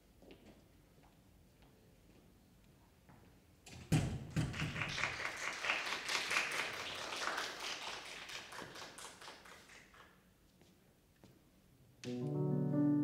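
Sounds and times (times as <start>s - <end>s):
audience applauding: 4.5s - 10.2s.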